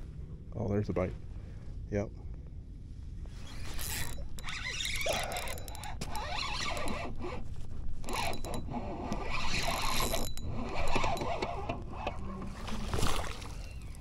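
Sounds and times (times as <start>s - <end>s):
fishing reel clicking: 3.5s - 12.6s.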